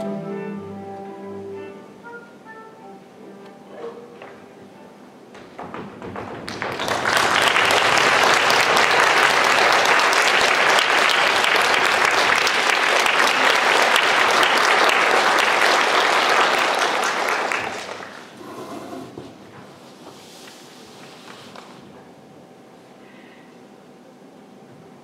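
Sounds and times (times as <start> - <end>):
audience applauding: 5.6 - 18.6.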